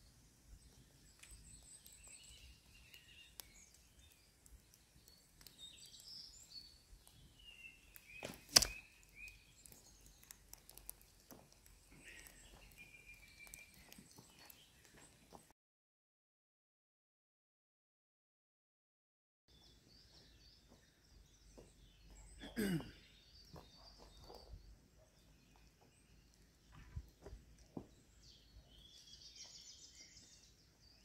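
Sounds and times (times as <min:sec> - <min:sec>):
faint birdsong: 0:00.0 - 0:15.5, 0:19.5 - 0:31.0
arrow hitting sack target: 0:08.2 - 0:08.9.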